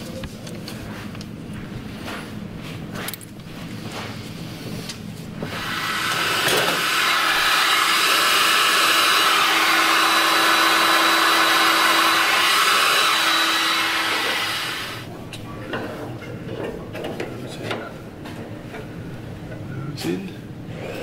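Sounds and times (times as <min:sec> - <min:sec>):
heat gun blowing air: 0:05.4 - 0:15.1.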